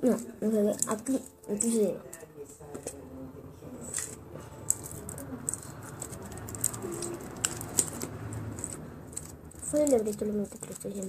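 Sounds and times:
candy packaging clicking: 0:03.9 - 0:11.0.

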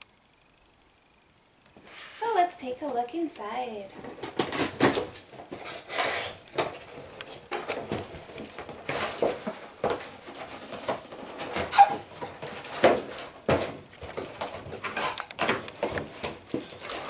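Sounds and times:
cardboard box scraping and rustling: 0:04.0 - 0:15.2.

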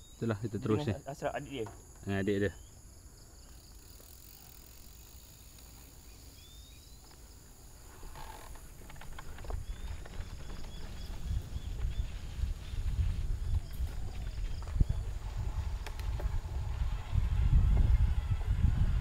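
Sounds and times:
insect chirps: 0:00.0 - 0:16.5
high-pitched insect drone: 0:02.6 - 0:08.6
bike rumbling over rough trail: 0:03.6 - 0:19.0.

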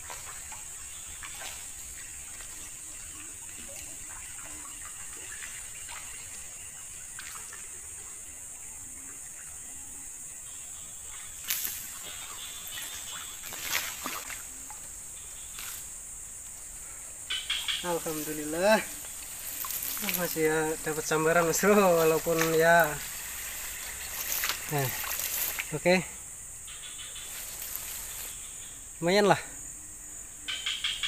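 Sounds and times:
insects buzzing: 0:00.0 - 0:31.0
fish splashing: 0:11.5 - 0:14.8, 0:18.0 - 0:25.7.

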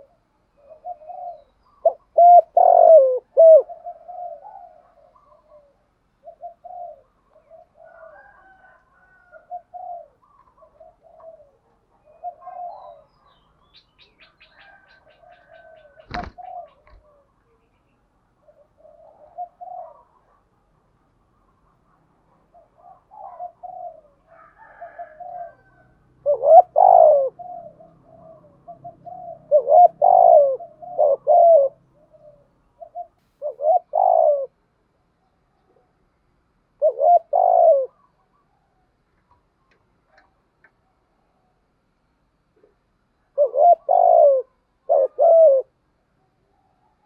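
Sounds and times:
dove cooing: 0:00.0 - 0:36.0, 0:36.7 - 0:41.6, 0:42.6 - 0:47.0.

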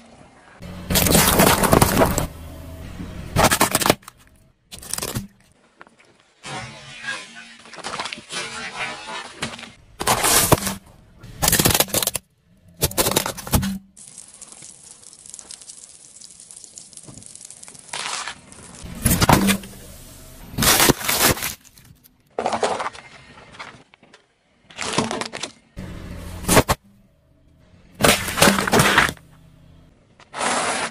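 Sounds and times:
car tyre crushing plastic: 0:00.9 - 0:02.4, 0:03.3 - 0:05.6, 0:09.1 - 0:26.9, 0:27.9 - 0:29.3.

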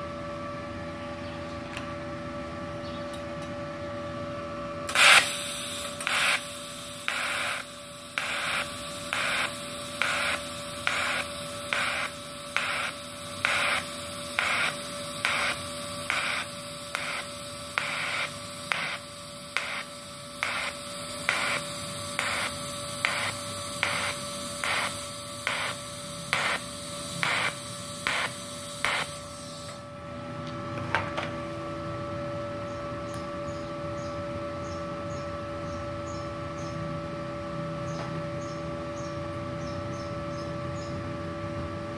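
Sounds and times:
welding machine hum: 0:04.8 - 0:30.1
welding arc hissing and pulsing: 0:04.9 - 0:29.9.

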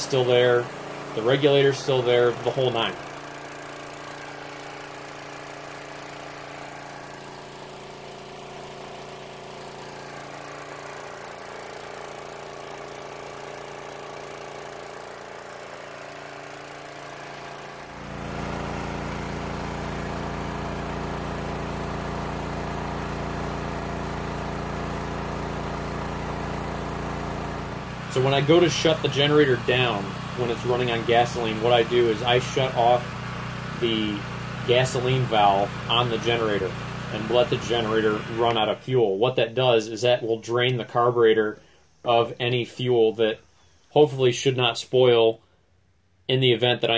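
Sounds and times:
generator engine running: 0:00.0 - 0:42.7.

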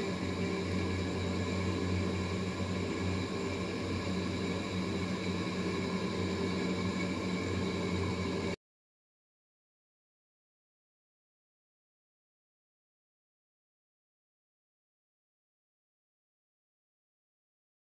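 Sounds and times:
mechanical hum with drone: 0:00.0 - 0:08.6.

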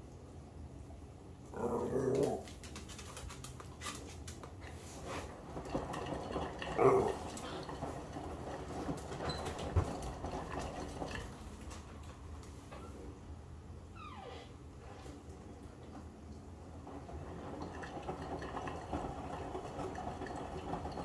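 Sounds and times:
washing machine drum turning: 0:05.5 - 0:11.7, 0:16.8 - 0:21.0.

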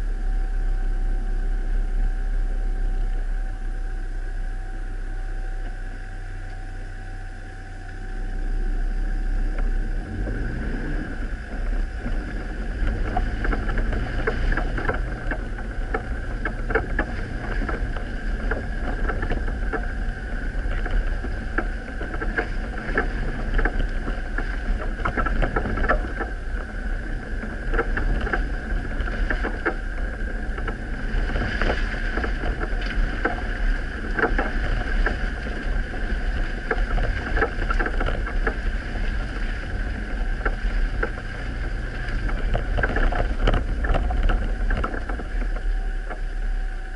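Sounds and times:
off-road vehicle engine: 0:00.0 - 0:46.9
vehicle knocking and rattling: 0:09.4 - 0:46.9.

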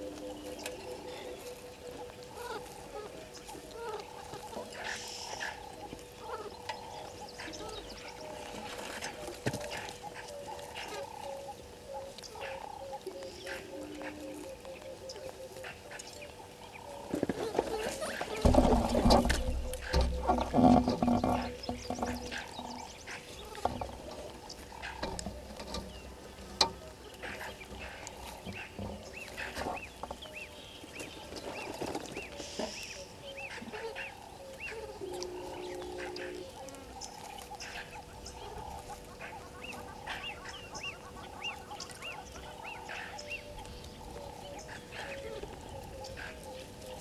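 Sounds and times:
bird chirping: 0:00.0 - 0:47.0
nasal honking bird call: 0:32.4 - 0:43.5.

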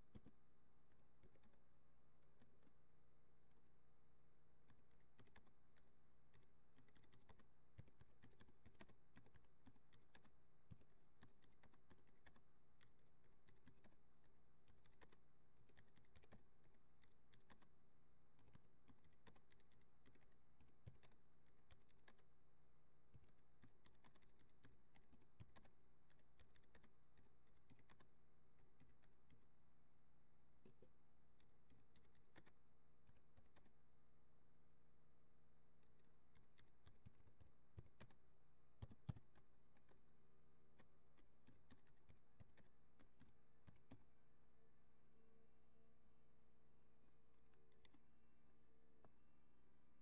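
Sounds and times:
low steady hum: 0:00.0 - 0:50.0
typing on computer keyboard: 0:00.1 - 0:00.4, 0:01.2 - 0:01.6, 0:04.6 - 0:17.7, 0:18.3 - 0:22.3, 0:23.1 - 0:29.4, 0:31.4 - 0:33.8, 0:36.3 - 0:38.2, 0:38.8 - 0:40.0, 0:40.7 - 0:44.0, 0:47.7 - 0:48.0.

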